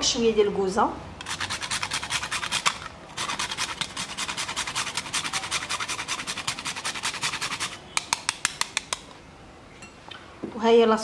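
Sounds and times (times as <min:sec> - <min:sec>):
nutmeg grated by hand: 0:01.2 - 0:09.0.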